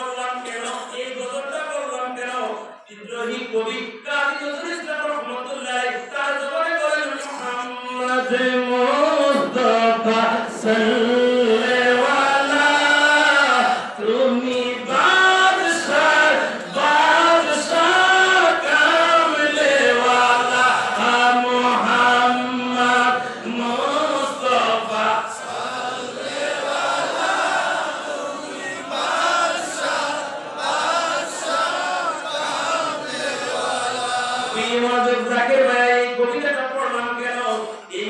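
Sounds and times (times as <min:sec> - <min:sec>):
man singing a chant: 0:07.6 - 0:26.2.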